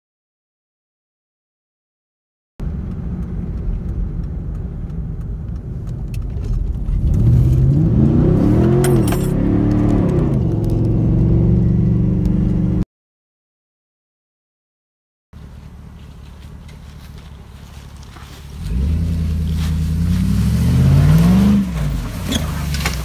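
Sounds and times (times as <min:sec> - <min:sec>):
truck engine revving: 0:06.8 - 0:12.8, 0:18.5 - 0:23.0.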